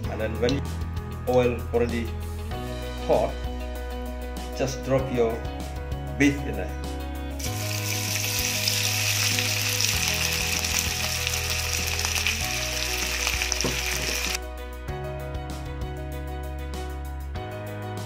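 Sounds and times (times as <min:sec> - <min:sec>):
meat sizzling in frying pan: 0:07.4 - 0:14.4.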